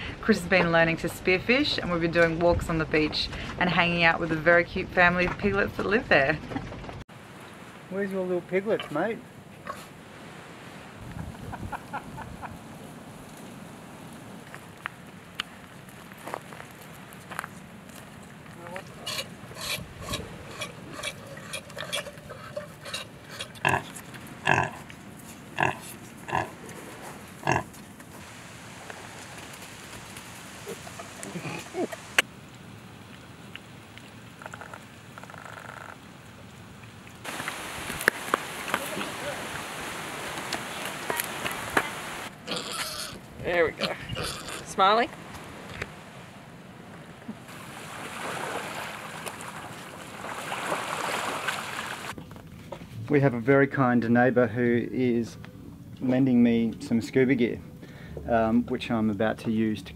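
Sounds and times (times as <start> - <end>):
small waves rushing on beach: 7.1 - 11.1, 28.2 - 32.2, 37.2 - 42.3, 45.2 - 52.2
pigs grunting: 18.8 - 24.8, 25.6 - 26.8, 27.4 - 27.7, 30.8 - 32.0, 42.4 - 44.7.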